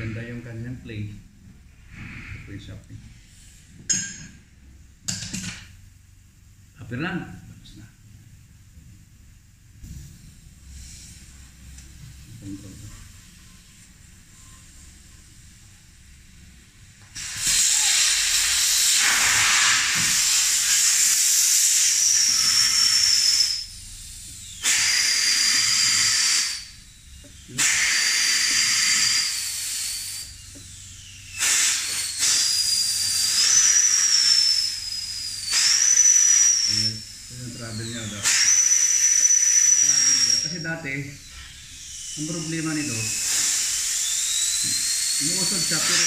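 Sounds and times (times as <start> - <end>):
compressed air hose hissing: 1.7 - 4.3, 9.8 - 46.0
high whistle: 14.4 - 14.9, 17.2 - 46.0.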